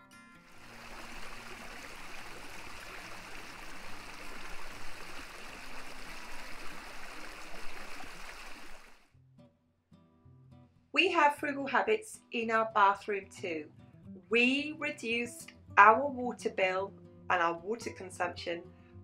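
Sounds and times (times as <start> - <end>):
stream flowing over stones: 0.5 - 9.0.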